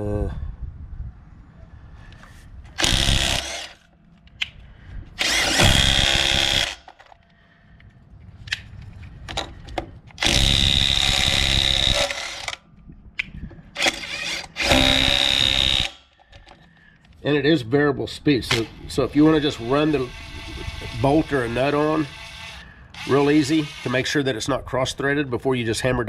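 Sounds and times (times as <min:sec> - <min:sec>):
impact wrench whining: 0:02.7 - 0:04.4, 0:05.2 - 0:07.3, 0:10.1 - 0:12.7, 0:13.6 - 0:16.7, 0:19.4 - 0:24.2.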